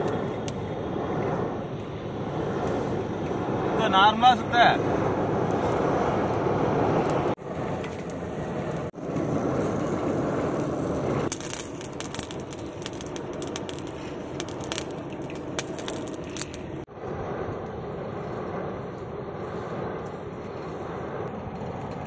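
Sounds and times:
air and flame rushing: 0.0s - 22.0s
coals crackling and popping: 5.3s - 16.9s, 20.0s - 22.0s.

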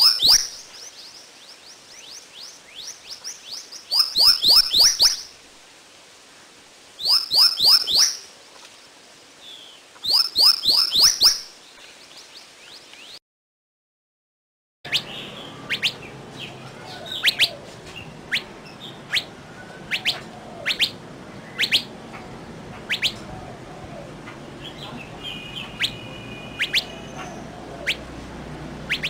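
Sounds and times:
birds chirping: 0.0s - 5.4s, 7.0s - 13.2s, 14.9s - 29.0s
whistled bird note: 3.9s - 5.3s, 7.0s - 8.2s, 10.1s - 11.5s, 25.2s - 28.0s.

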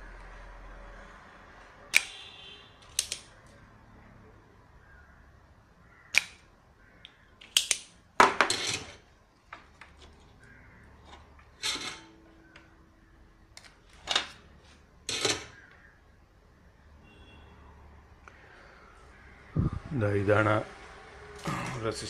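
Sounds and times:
hand tools clicking and clattering: 11.0s - 12.2s.

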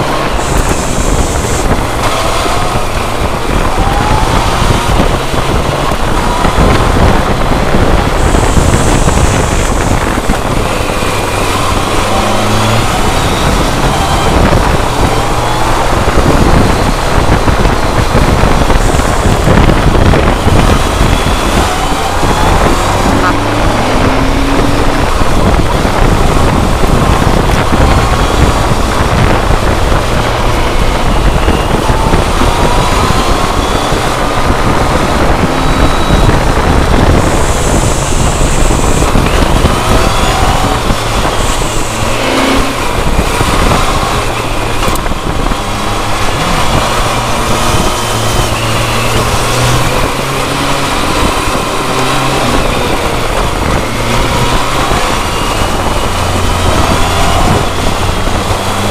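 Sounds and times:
motorcycle engine: 0.0s - 58.9s
wind and road noise: 0.0s - 58.9s.

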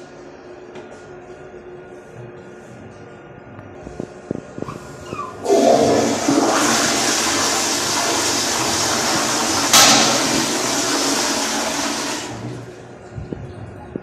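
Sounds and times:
toilet flushing: 5.0s - 12.8s.

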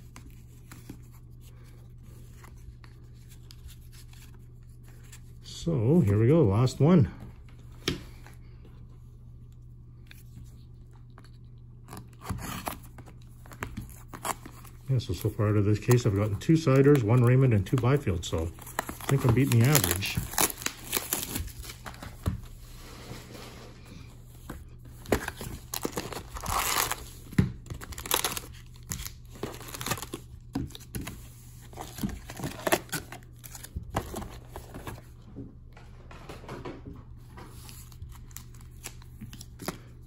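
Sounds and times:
foil packs crinkling: 11.9s - 22.3s, 25.0s - 30.8s.

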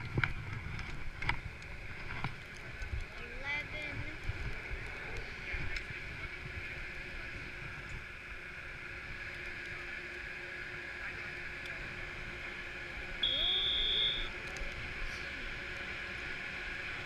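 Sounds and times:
chairlift machinery humming: 0.0s - 17.0s
high electronic beep: 13.2s - 14.3s.

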